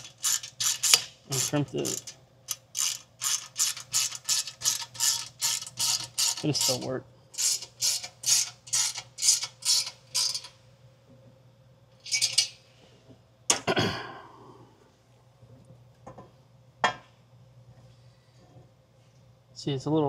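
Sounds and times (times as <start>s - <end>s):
ratchet clicking: 0.0s - 10.6s.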